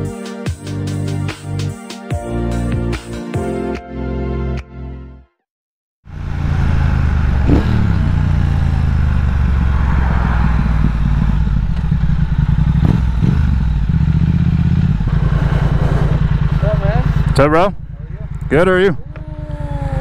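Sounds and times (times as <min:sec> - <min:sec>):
motorcycle engine running slowly: 0:06.1 - 0:20.0.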